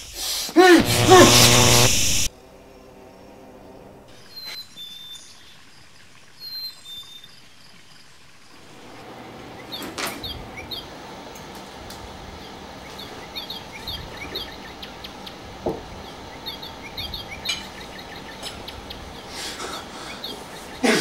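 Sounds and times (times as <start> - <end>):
steady background hiss: 0.0 - 21.0
small birds chirping: 3.7 - 21.0
knock: 15.6 - 15.9.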